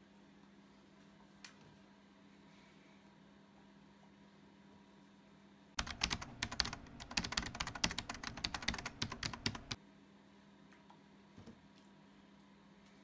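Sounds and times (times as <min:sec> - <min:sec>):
rapid light clicks and taps: 0:05.8 - 0:09.8.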